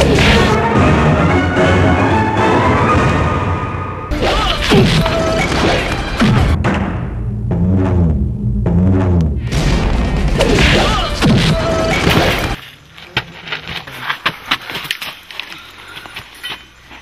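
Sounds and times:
loud crashing sound effect: 4.1 - 12.6
scuffles: 12.6 - 17.0.

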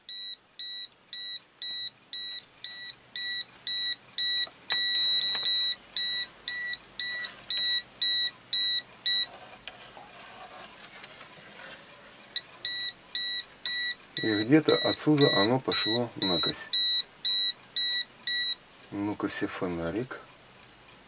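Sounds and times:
voltage tester beeping: 0.1 - 9.3, 12.6 - 18.6.

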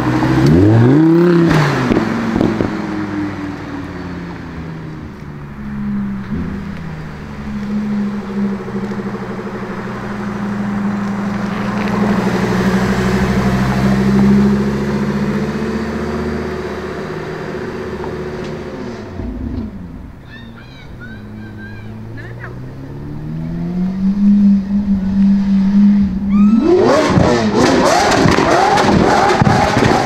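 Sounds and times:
car engine passing by: 4.8 - 20.2, 21.5 - 30.0.

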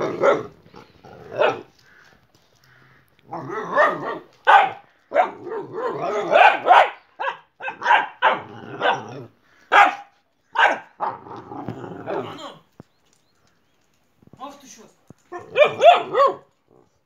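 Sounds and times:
dog barking: 0.0 - 0.5, 1.3 - 1.7, 3.7 - 9.1, 9.7 - 11.2, 15.3 - 16.5.

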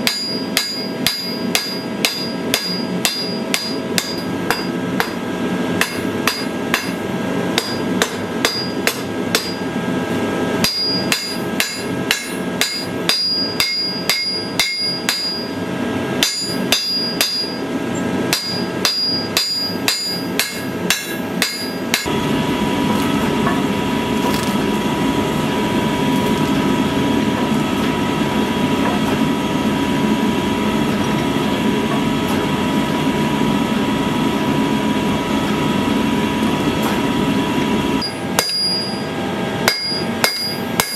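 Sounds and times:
hammer striking steel on anvil: 0.0 - 9.7, 10.6 - 15.6, 16.2 - 17.6, 18.3 - 22.1, 38.0 - 40.9.

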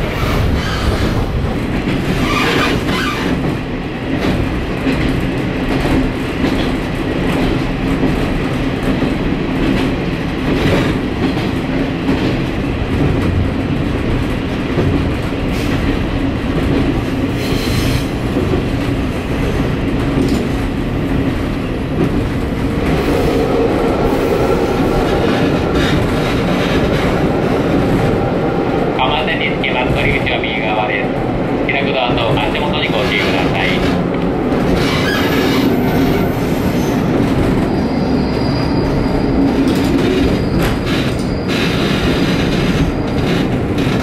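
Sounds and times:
railcar engine drone: 0.0 - 44.0.

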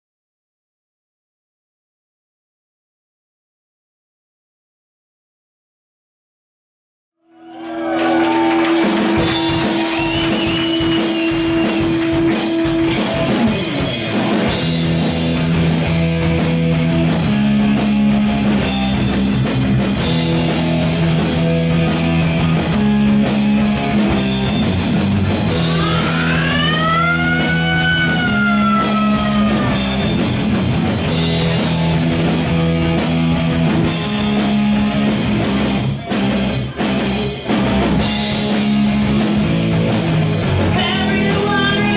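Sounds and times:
metal band playing live: 7.4 - 41.9.

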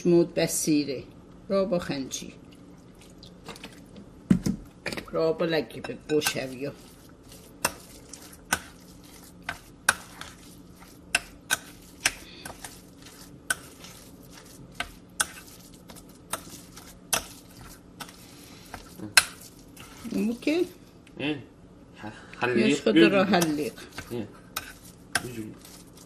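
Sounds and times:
spoon stirring thick mixture: 5.7 - 20.8, 23.3 - 26.0.

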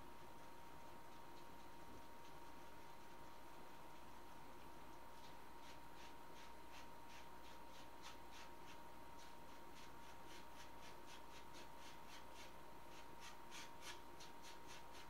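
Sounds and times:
paintbrush stroking on canvas: 5.1 - 15.0.

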